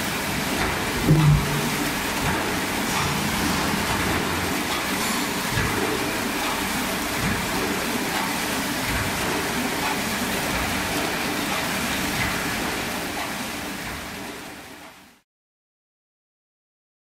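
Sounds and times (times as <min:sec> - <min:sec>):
machine rumble: 0:00.2 - 0:07.7.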